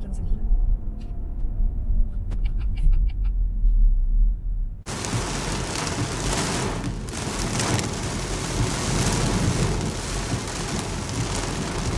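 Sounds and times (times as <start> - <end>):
low rumble: 0.0 - 11.9
rain pelting car windshield: 4.9 - 11.9.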